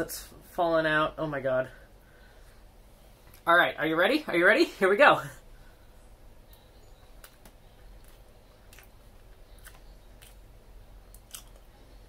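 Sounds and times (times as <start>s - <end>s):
person chewing with mouth clicks: 7.2s - 12.0s.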